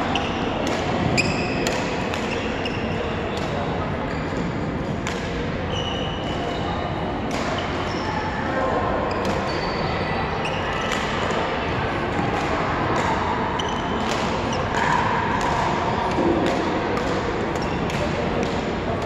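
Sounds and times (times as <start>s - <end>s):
racket striking shuttlecock: 0.6s - 2.5s
shoes squeaking on floor: 1.2s - 1.6s, 5.7s - 6.5s.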